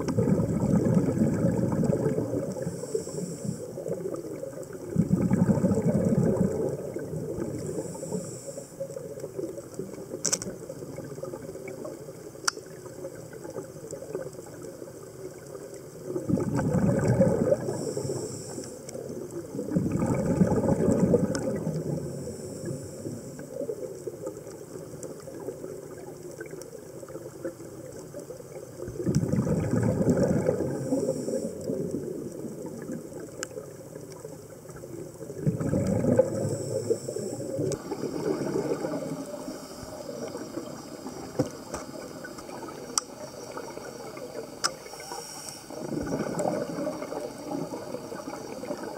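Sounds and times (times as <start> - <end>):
underwater exhaled air bubbling: 0.0 - 48.9
faint hissing inhalations: 2.6 - 4.0, 7.6 - 9.1, 17.6 - 19.1, 21.9 - 23.6, 30.7 - 31.8, 36.2 - 42.4, 44.8 - 45.9.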